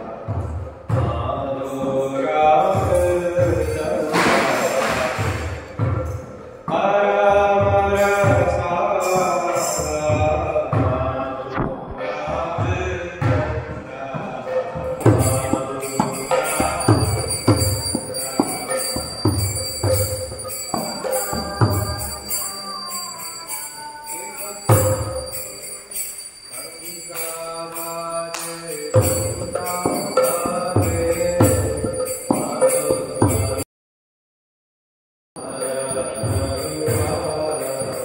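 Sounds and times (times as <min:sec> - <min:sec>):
voices singing: 0:00.0 - 0:33.6, 0:35.4 - 0:38.0
bells and hand cymbals ringing: 0:01.5 - 0:06.4, 0:07.6 - 0:10.9, 0:14.4 - 0:33.6, 0:35.4 - 0:38.0
drum beat: 0:02.6 - 0:22.4, 0:28.9 - 0:33.6.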